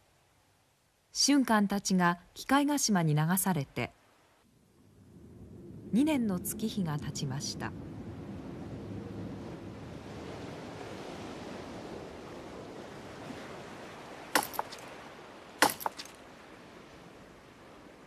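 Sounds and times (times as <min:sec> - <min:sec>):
sea waves washing on shore: 0:07.9 - 0:18.0.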